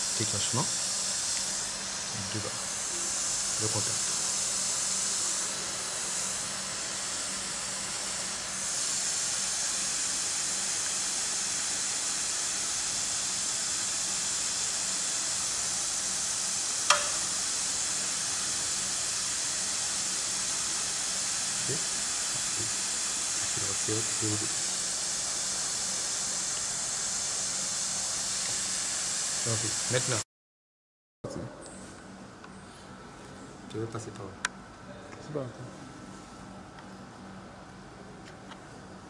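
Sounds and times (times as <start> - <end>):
pressurised gas hissing: 0.0 - 30.2
sharp click: 16.9 - 17.4.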